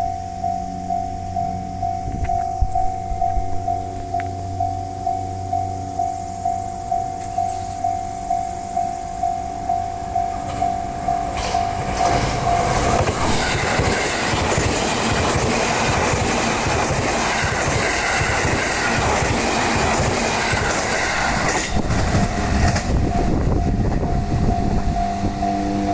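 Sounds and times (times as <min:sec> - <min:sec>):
level-crossing warning bell: 0:00.0 - 0:25.9
train wheels clattering over rail joints: 0:10.4 - 0:23.2.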